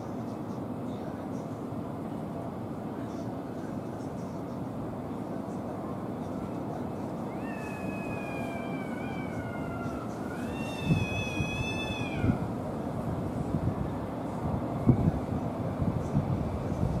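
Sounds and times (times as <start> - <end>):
cats yowling: 7.2 - 12.5.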